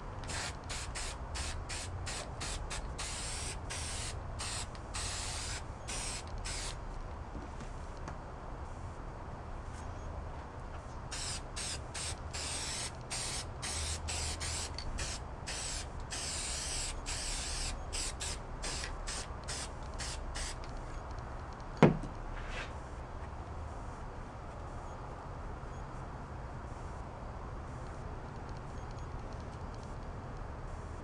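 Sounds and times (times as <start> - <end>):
aerosol can spraying: 0.3 - 6.8, 11.1 - 20.6.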